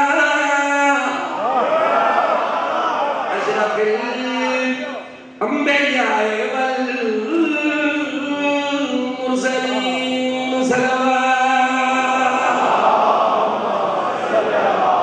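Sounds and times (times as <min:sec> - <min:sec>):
man chanting: 0:00.0 - 0:01.4, 0:03.3 - 0:13.3.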